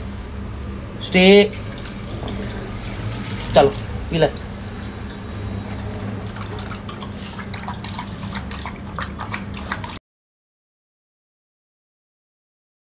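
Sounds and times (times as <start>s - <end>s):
liquid pouring into steel bowl: 1.1s - 10.0s
dog lapping: 1.4s - 10.0s.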